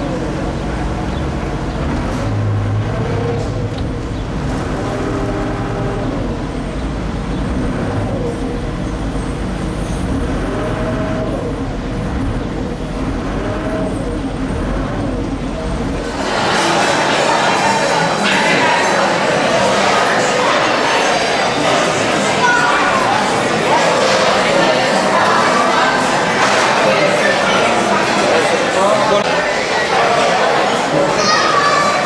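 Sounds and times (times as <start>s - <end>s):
boat engine rumbling: 0.0s - 18.0s
restaurant chatter: 0.0s - 32.0s.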